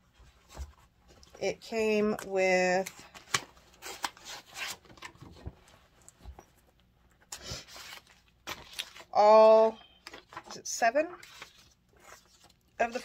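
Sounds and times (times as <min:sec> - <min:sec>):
paper rustling: 0:07.4 - 0:10.6, 0:11.2 - 0:13.0.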